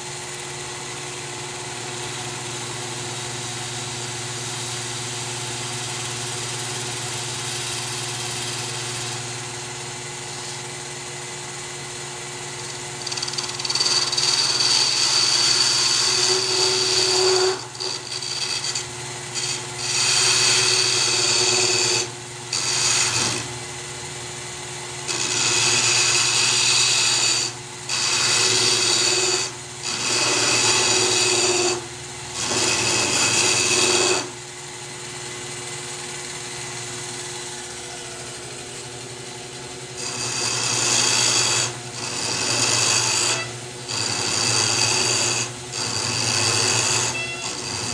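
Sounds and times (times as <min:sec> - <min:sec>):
blade scraping leather: 0:40.1 - 0:47.9.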